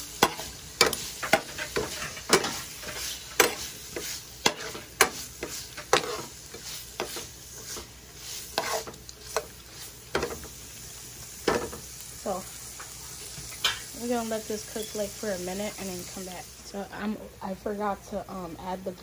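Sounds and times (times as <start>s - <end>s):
meat sizzling: 0.0s - 18.0s
metal spoon scraping a frying pan: 0.1s - 10.5s.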